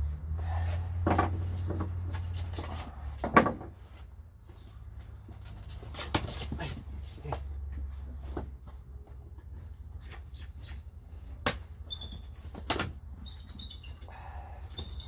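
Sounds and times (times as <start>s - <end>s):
bird chirp: 10.0s - 11.1s, 11.8s - 12.4s, 13.2s - 15.0s.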